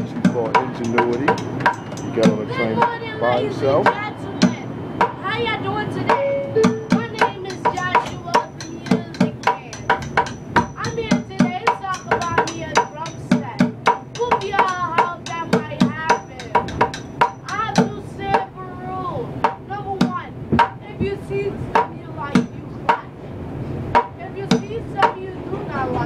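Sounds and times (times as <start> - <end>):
drumsticks beating plastic bucket: 0.0 - 3.0.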